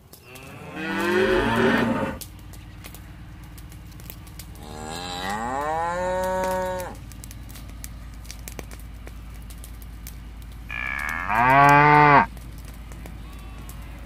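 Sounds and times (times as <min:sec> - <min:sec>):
cattle mooing: 0:00.2 - 0:02.2, 0:04.6 - 0:07.0, 0:10.7 - 0:12.3
faint clicks: 0:02.2 - 0:14.0.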